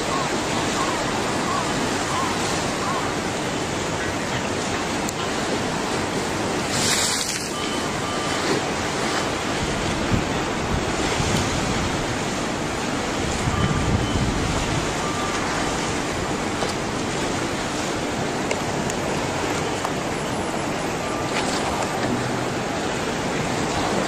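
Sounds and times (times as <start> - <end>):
seawater surging and churning: 0.0 - 24.0
wind buffeting microphone: 7.9 - 20.1.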